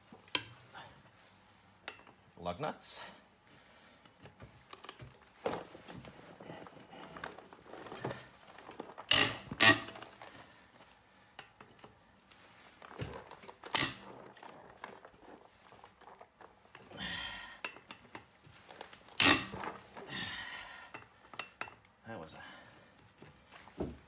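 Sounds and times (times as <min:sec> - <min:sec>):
lug nuts cracking loose: 0:07.7 - 0:10.0, 0:19.1 - 0:19.7.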